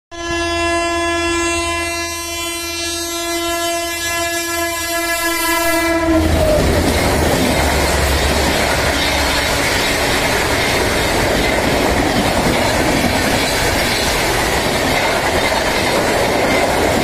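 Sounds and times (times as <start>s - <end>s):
locomotive horn long blast: 0.1s - 10.4s
rush of passing train coaches: 1.4s - 17.0s.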